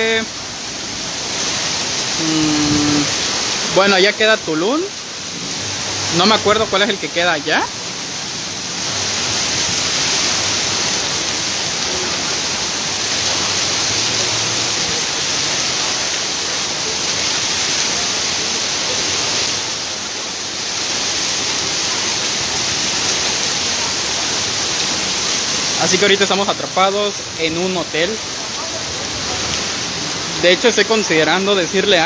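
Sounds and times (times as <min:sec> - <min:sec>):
heavy rain on a flooded street: 0:00.0 - 0:32.0.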